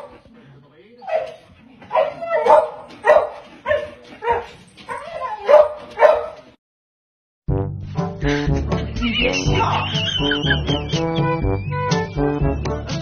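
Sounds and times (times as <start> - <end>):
small dog barking: 1.0 - 4.5, 5.4 - 6.4.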